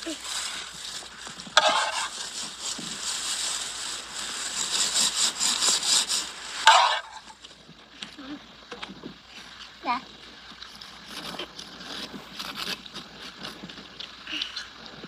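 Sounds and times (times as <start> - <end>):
steady hiss: 0.0 - 7.7
spoon scraping on metal tray: 1.6 - 2.3, 4.7 - 7.4.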